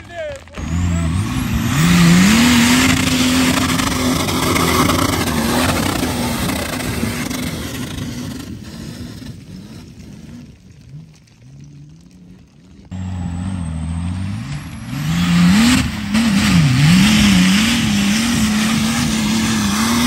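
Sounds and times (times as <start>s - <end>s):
stones and dirt spraying: 0.0s - 13.0s
diesel engine revving hard: 0.6s - 9.9s, 12.9s - 20.0s.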